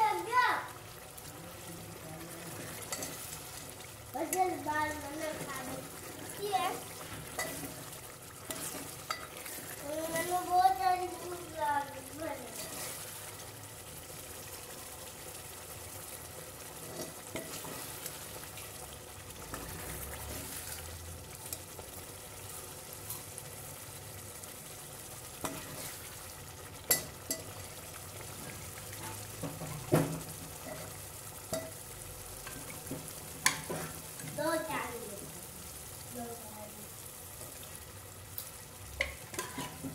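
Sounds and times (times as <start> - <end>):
curry sizzling in oil: 0.0 - 39.9
ladle scraping a steel pot: 2.7 - 3.4, 7.0 - 9.8.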